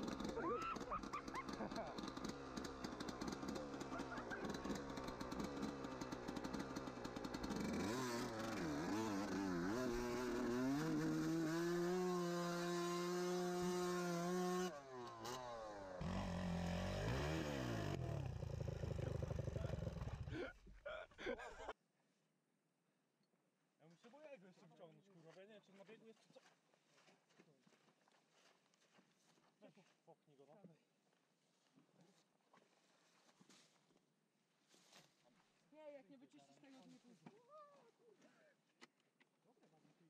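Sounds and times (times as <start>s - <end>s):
dirt bike engine revving: 0.0s - 20.4s.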